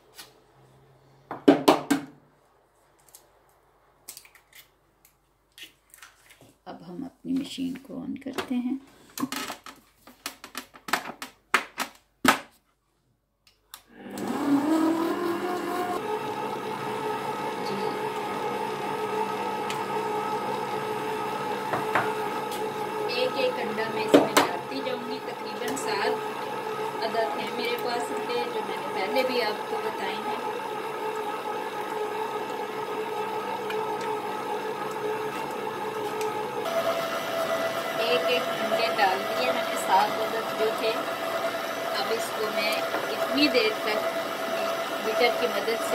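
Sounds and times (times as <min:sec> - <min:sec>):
stand mixer motor humming: 0:13.9 - 0:45.9.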